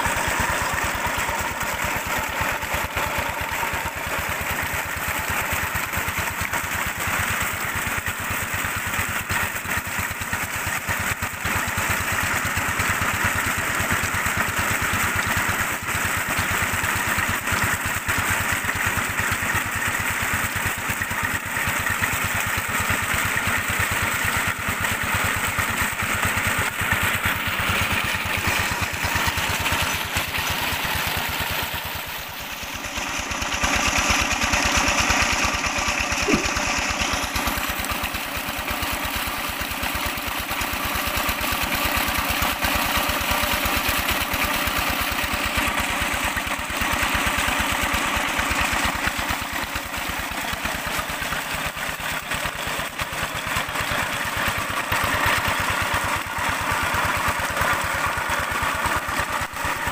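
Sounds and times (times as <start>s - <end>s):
water pouring from pipe: 0.0s - 59.9s
diesel engine running: 24.4s - 43.1s.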